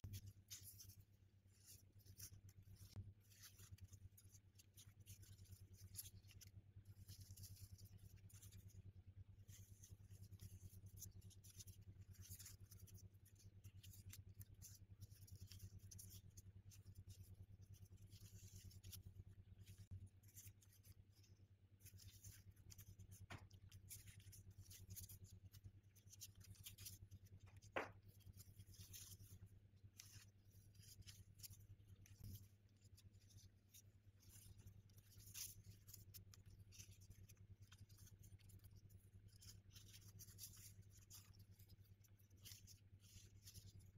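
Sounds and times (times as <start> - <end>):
low steady hum: 0.0 - 43.9.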